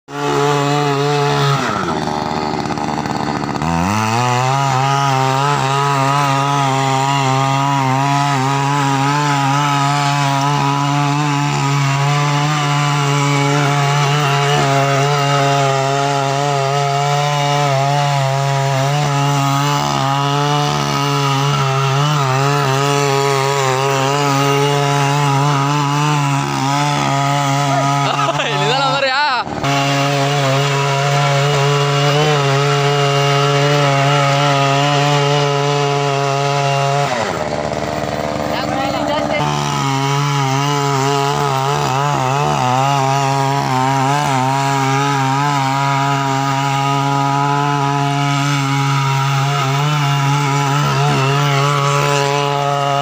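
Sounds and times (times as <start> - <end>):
small petrol engine revving: 0.0 - 53.0
tines churning soil: 0.1 - 53.0.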